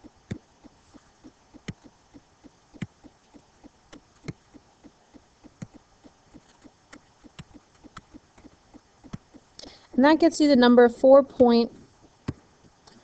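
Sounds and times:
faint fast soft tapping: 0.0 - 10.0
computer mouse clicks: 0.2 - 9.4.

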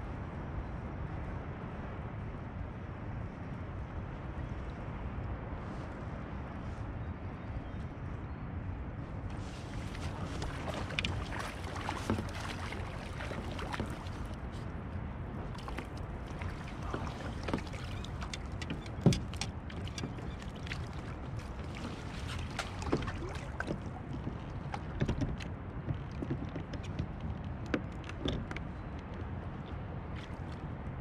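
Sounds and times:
water: 0.0 - 31.0
wind: 0.0 - 31.0
gear knocking against kayak hull: 15.5 - 29.2.

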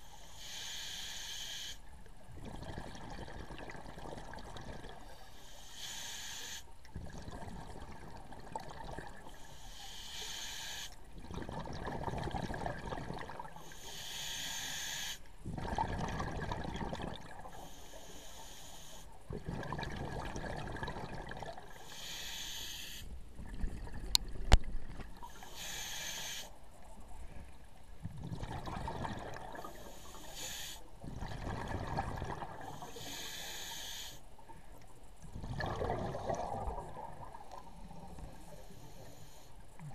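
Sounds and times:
regulator hiss on inhale: 0.0 - 2.0, 5.0 - 6.8, 9.2 - 11.1, 13.6 - 15.4, 17.5 - 19.2, 21.7 - 23.2, 25.2 - 27.5, 29.5 - 31.0, 32.6 - 34.6, 37.9 - 39.9
bubbling exhaust underwater: 2.2 - 5.2, 6.9 - 10.4, 11.0 - 14.7, 15.4 - 18.3, 19.2 - 39.9.

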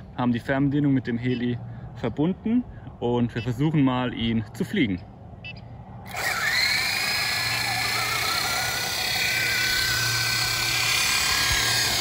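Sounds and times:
helicopter rotor whine: 6.1 - 12.0.

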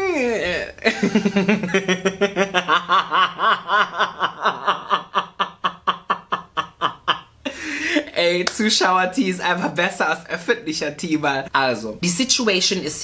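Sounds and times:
man laughing in breathy bursts: 0.8 - 8.2.

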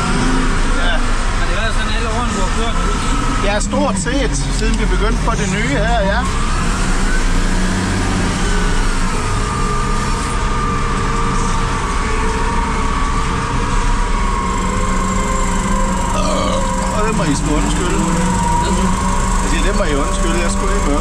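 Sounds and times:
diesel engine running: 0.0 - 21.0
high whine: 8.3 - 21.0.

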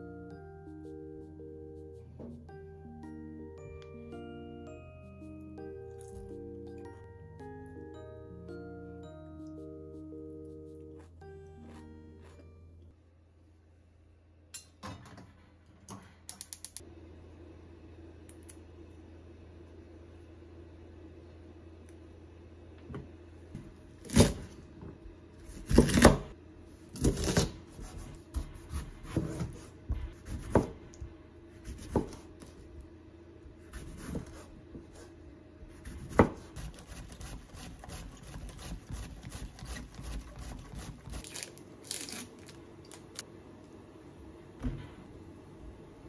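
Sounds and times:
knife cutting on wooden board: 33.7 - 35.1, 35.8 - 41.3
plastic packaging crinkling: 41.2 - 43.2.

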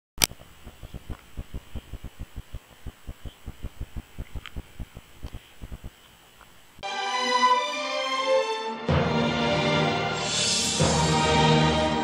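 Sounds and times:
sharp click: 0.2 - 6.5
faint high-pitched whine: 0.2 - 6.8
steady hiss: 0.2 - 6.8
rapid low thumps: 0.3 - 6.0.

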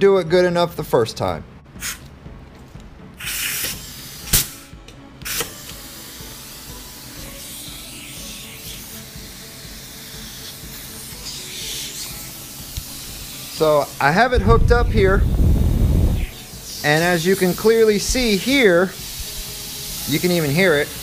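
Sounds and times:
compressed air hissing: 1.8 - 2.1, 3.2 - 21.0
short burst of air: 1.8 - 2.1, 3.2 - 5.7, 14.4 - 16.5.

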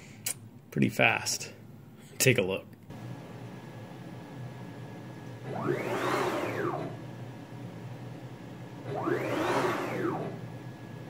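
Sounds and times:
stepper motor whine: 5.4 - 7.1, 8.8 - 11.0.

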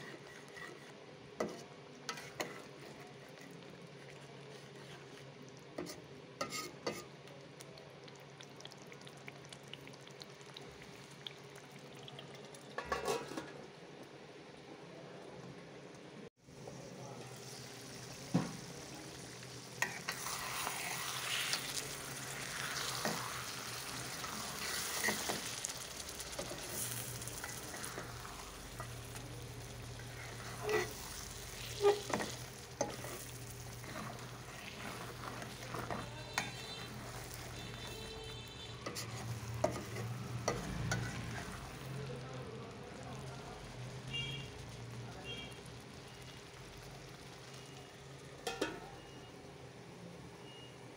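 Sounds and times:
spatula scraping a wok: 0.0 - 7.2, 12.8 - 13.6, 19.4 - 42.0
food sizzling in a wok: 0.0 - 13.8, 16.4 - 50.9.

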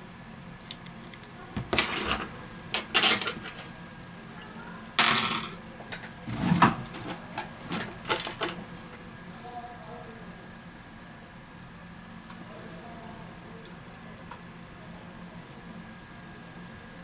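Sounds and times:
tools clattering and scraping: 1.6 - 3.7.

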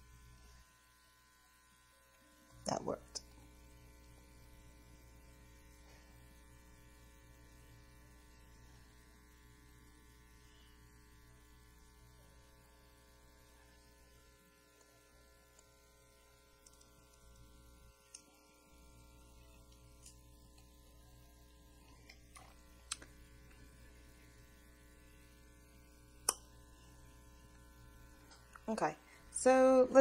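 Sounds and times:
faint electrical hum: 0.0 - 30.0.

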